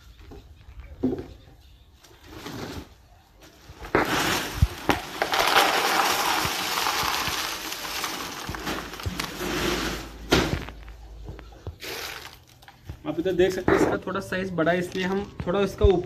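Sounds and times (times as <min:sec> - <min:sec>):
peanut shells rattling into tub: 0:04.7 - 0:09.5.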